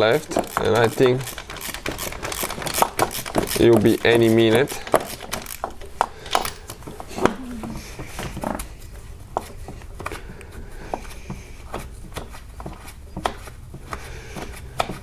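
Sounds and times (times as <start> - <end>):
wrench clicking and tapping on metal: 0.3 - 6.8.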